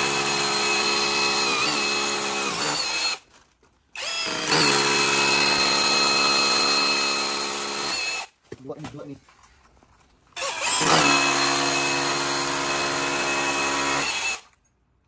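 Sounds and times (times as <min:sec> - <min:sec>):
hammer drill boring into wall: 0:00.0 - 0:03.2, 0:04.0 - 0:08.3, 0:10.4 - 0:14.6.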